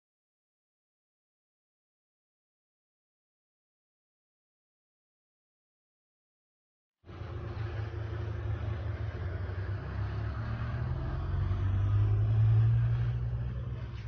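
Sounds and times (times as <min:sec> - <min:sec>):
vehicle engine rumbling: 0:07.1 - 0:14.0.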